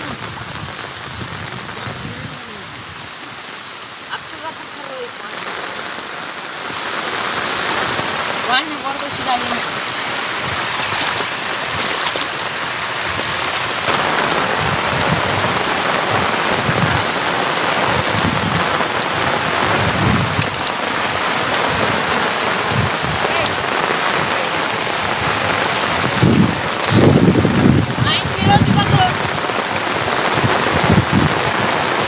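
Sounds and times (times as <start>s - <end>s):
heavy rain pouring: 0.0s - 32.0s
low rumbles: 6.6s - 32.0s.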